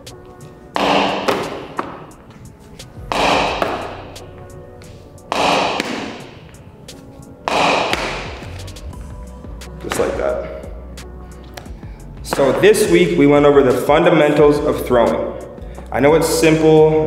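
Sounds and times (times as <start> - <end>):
ball smacking concrete wall: 0.7 - 2.3, 3.0 - 4.3, 5.3 - 6.6, 7.4 - 8.6.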